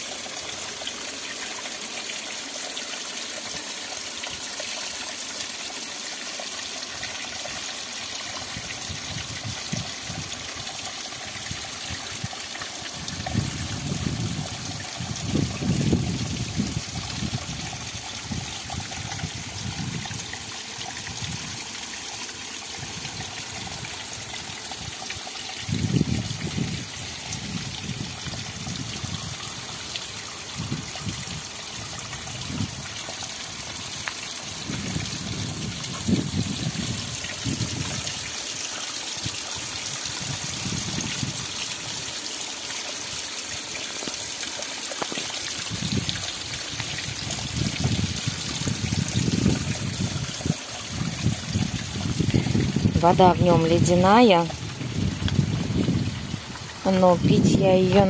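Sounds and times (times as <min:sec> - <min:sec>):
waterfall splashing onto stones: 0:00.0 - 0:58.0.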